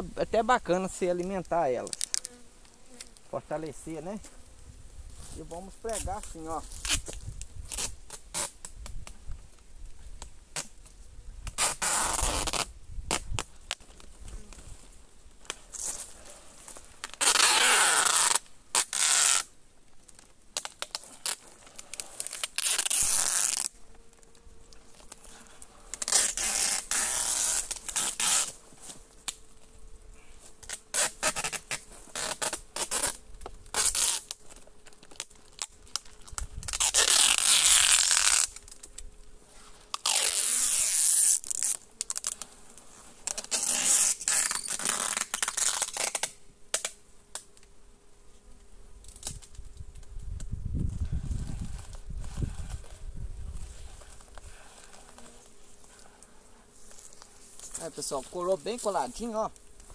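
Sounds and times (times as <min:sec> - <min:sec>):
masking tape ripping: 0:01.4 - 0:03.2, 0:05.8 - 0:09.1, 0:10.5 - 0:10.7, 0:11.4 - 0:13.9, 0:17.0 - 0:19.5, 0:20.1 - 0:23.8, 0:24.9 - 0:28.6, 0:30.6 - 0:39.0, 0:39.9 - 0:42.5, 0:43.2 - 0:47.6, 0:49.0 - 0:49.6.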